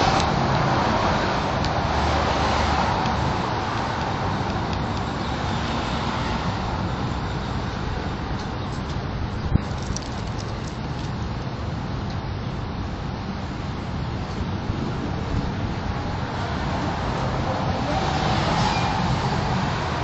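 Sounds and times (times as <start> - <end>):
passing cars: 0.0 - 11.1, 13.4 - 20.0.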